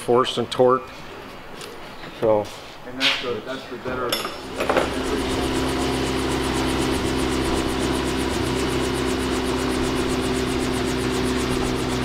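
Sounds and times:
rotor beating: 4.3s - 12.0s
helicopter engine hum: 4.4s - 12.0s.

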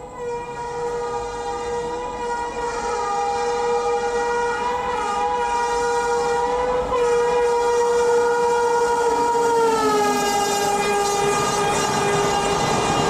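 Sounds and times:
locomotive horn blast: 0.0s - 13.0s
train coaches rumbling on rails: 0.0s - 13.0s.

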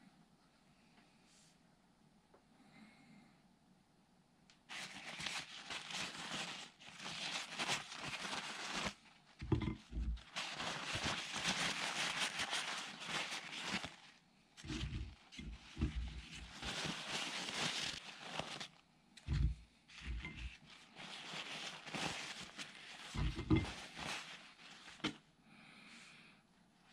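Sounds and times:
paper towel rustling and crinkling: 4.7s - 25.2s.

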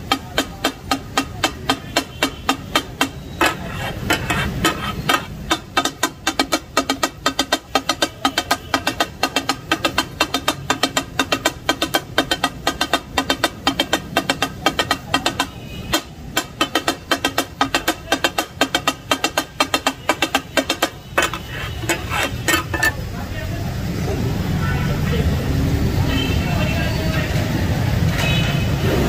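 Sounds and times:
steel blades clattering on griddle: 21.2s - 23.0s.

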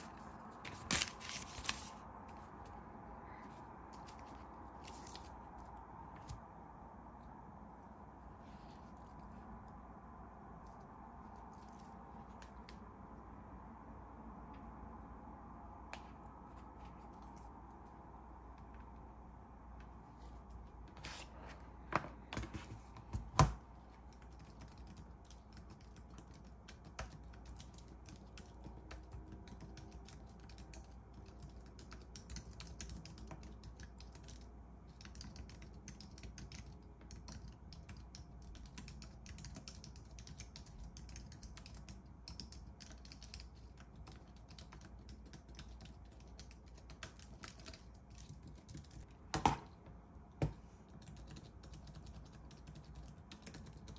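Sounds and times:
keyboard being handled knocks: 49.3s - 49.8s.

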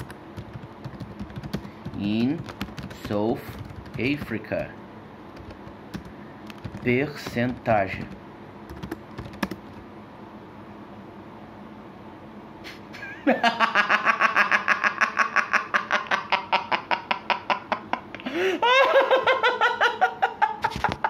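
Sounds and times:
man laughing heartily: 12.7s - 21.0s.

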